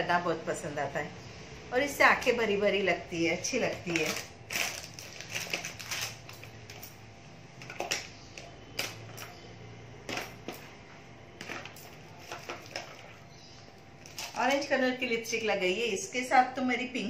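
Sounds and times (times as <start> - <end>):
cosmetic cases clicking together: 7.6 - 9.4.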